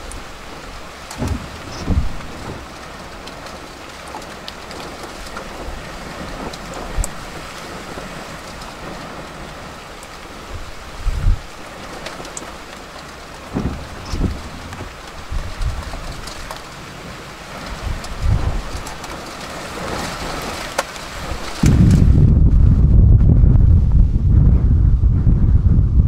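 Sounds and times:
rain on vehicle windshield: 0:00.0 - 0:23.0
low thumps: 0:01.2 - 0:02.7, 0:13.4 - 0:16.2.

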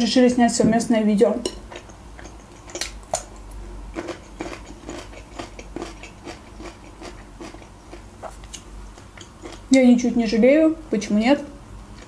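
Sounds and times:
person chewing food: 0:01.5 - 0:09.8.

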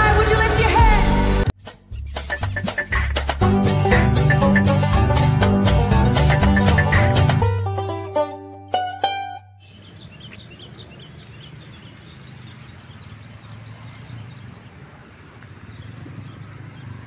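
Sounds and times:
motorcycle engines running: 0:10.7 - 0:17.0.

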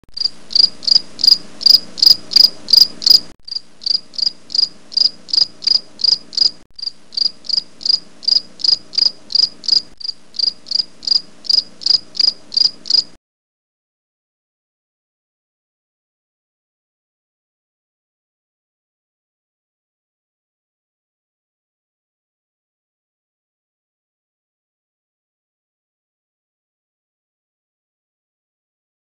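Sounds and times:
cricket chirping: 0:00.2 - 0:13.2
faint low hum: 0:00.2 - 0:13.2.

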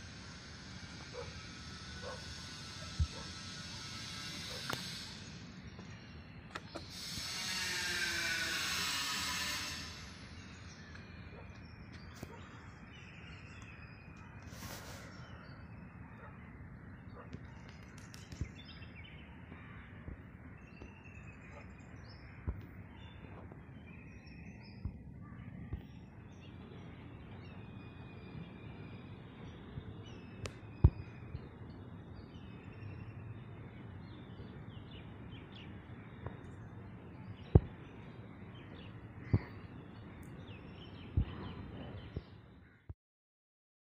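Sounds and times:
faint bird calls: 0:38.6 - 0:42.9.

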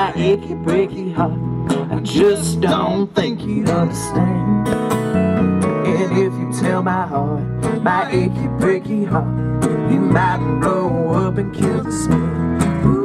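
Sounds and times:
electric bass line: 0:00.0 - 0:13.0
steel guitar gliding notes: 0:00.0 - 0:13.0
strummed acoustic guitar: 0:00.0 - 0:13.0.

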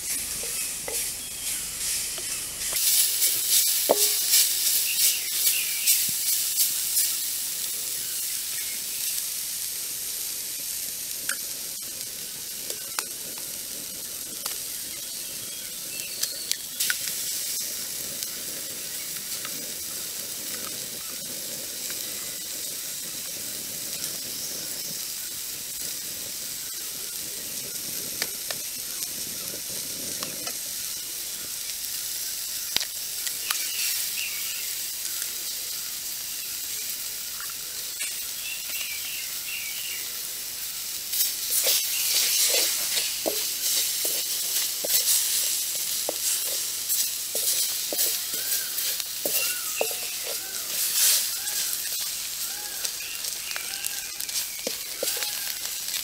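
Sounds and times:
spatula stirring in a wok: 0:00.0 - 0:07.6, 0:16.8 - 0:23.3, 0:40.7 - 0:56.0
greens sizzling in a wok: 0:00.0 - 0:56.0.

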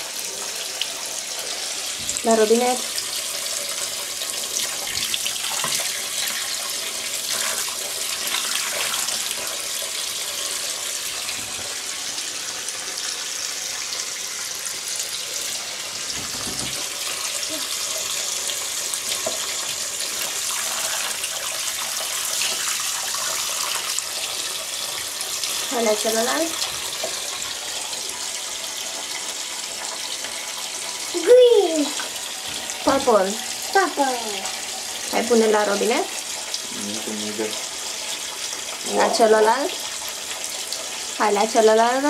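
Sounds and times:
tap water splashing: 0:00.8 - 0:09.9, 0:11.2 - 0:11.8, 0:15.4 - 0:27.7, 0:31.8 - 0:33.8.

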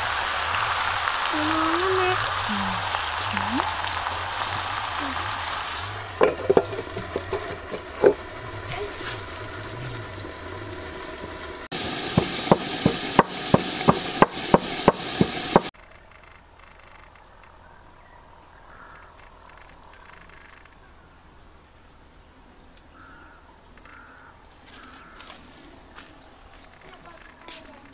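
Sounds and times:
food sizzling in a wok: 0:00.0 - 0:15.7
sharp knocks: 0:12.1 - 0:15.7.

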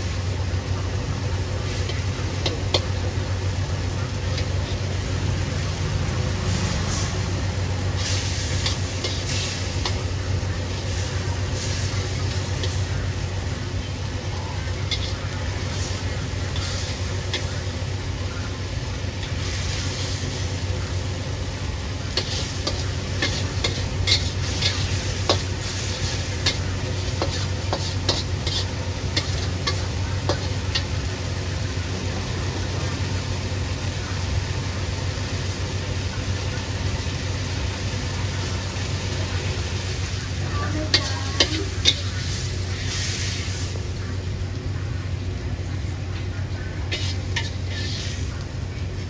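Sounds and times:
steady low hum: 0:00.0 - 0:34.2
food sizzling: 0:00.0 - 0:49.0
spatula scraping a wok: 0:01.0 - 0:20.8, 0:21.8 - 0:31.8, 0:38.4 - 0:44.1, 0:46.5 - 0:49.0.

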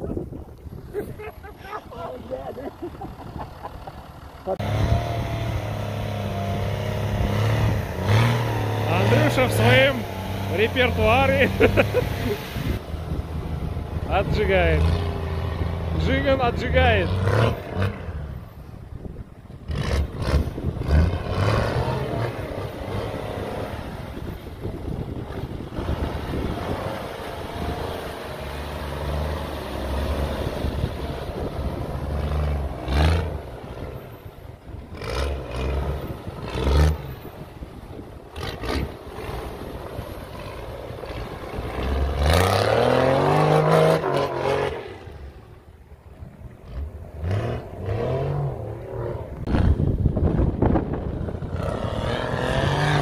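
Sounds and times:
engine revving hard: 0:04.5 - 0:12.8, 0:14.1 - 0:18.3, 0:19.7 - 0:24.4, 0:25.7 - 0:34.0, 0:34.9 - 0:37.2, 0:38.4 - 0:39.7, 0:40.4 - 0:45.2, 0:46.6 - 0:50.0, 0:51.4 - 0:53.0.

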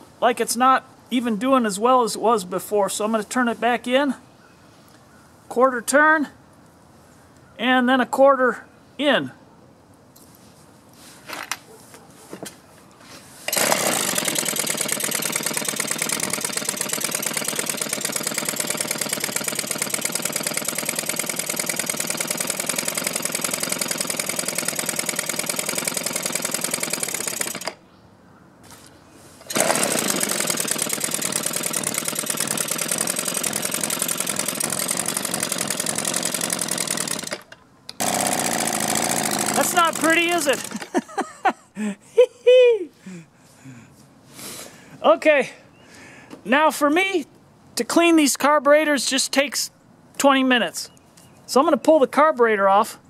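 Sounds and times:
leaf blower engine running: 0:13.5 - 0:27.8, 0:29.4 - 0:41.1.

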